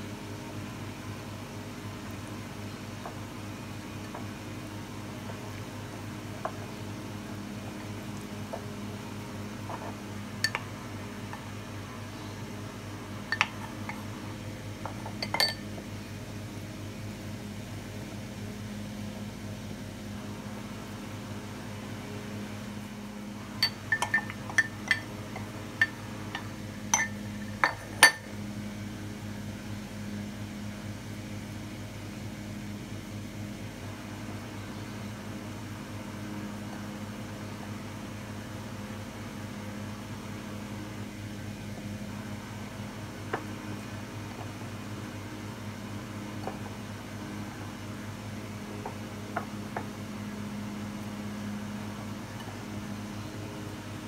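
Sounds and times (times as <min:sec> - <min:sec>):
ceramic cup clinking on glass bowl: 0:15.1 - 0:15.7, 0:23.6 - 0:28.3.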